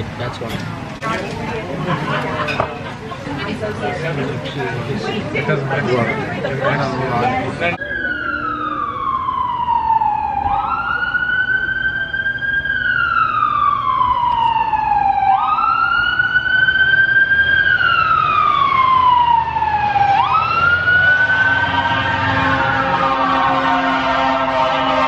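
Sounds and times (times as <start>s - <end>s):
emergency vehicle siren wailing: 6.7s - 25.0s.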